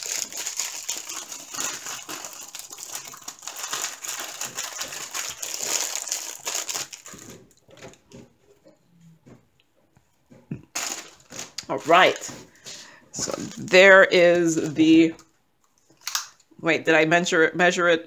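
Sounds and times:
plastic packaging crinkling: 0:00.0 - 0:08.1, 0:10.7 - 0:16.4.

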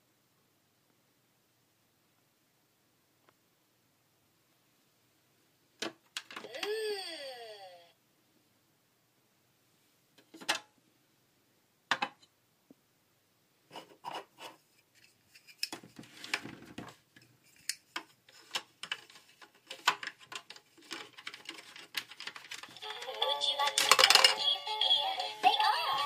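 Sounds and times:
plastic rubbing: 0:13.7 - 0:24.3.

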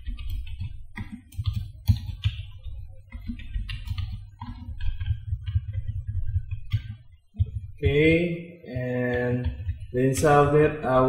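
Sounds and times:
computer keyboard typing: 0:00.0 - 0:08.2, 0:08.8 - 0:11.0
steady low hum: 0:00.0 - 0:11.0.

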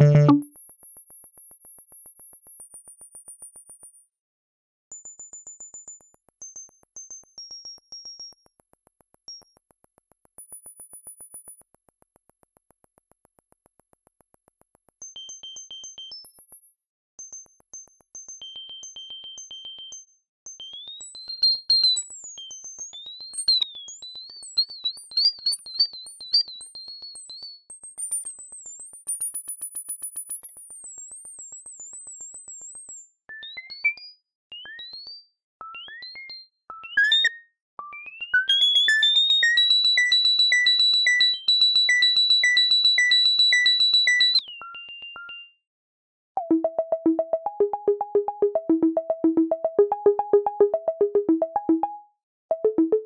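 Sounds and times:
electronic marimba music: 0:00.0 - 0:00.4, 0:46.4 - 0:53.0
high-pitched beeping notes: 0:00.0 - 0:00.4, 0:38.5 - 0:44.4, 0:46.4 - 0:53.0.

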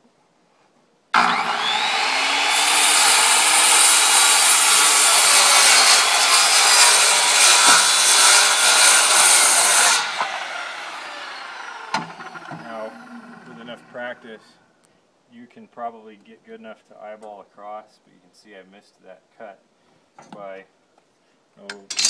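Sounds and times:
saw blade spinning down: 0:01.2 - 0:14.2
circular saw cutting wood: 0:01.2 - 0:14.4.

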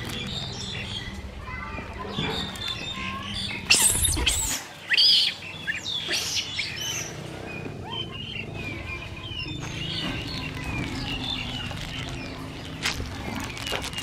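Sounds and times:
monkeys shrieking: 0:02.4 - 0:12.4.

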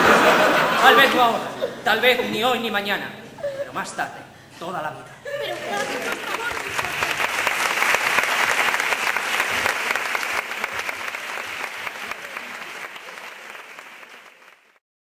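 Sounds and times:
audience applauding: 0:05.4 - 0:14.8.

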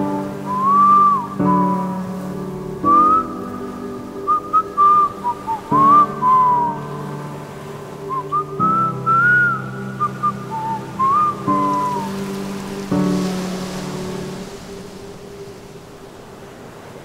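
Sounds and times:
whistled melody: 0:00.0 - 0:15.5
soft held chords: 0:00.0 - 0:16.1.

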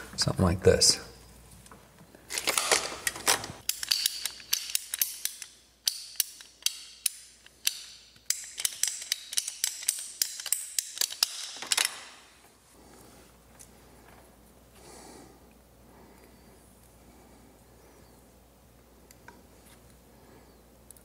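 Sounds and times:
ratcheting pipe cutter clicking: 0:03.6 - 0:12.1.

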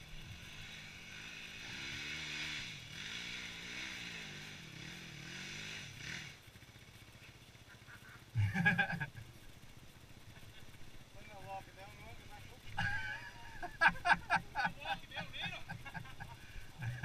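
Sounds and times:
dirt bike engine revving: 0:00.0 - 0:09.6.

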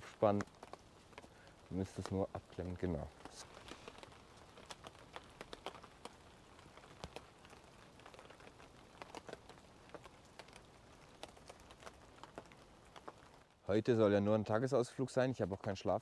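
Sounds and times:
soft hiss: 0:00.0 - 0:16.0.

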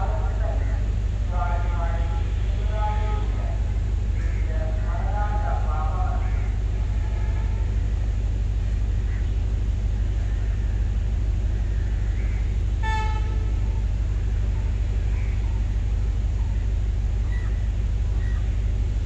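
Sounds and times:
steady low rumble: 0:00.0 - 0:19.0
train horn toot: 0:01.5 - 0:03.7, 0:06.2 - 0:08.2, 0:12.6 - 0:15.5.

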